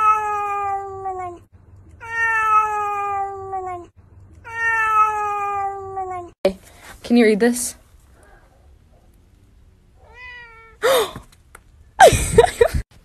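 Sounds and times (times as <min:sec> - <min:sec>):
cat meowing: 0:00.0 - 0:06.4, 0:10.0 - 0:10.8.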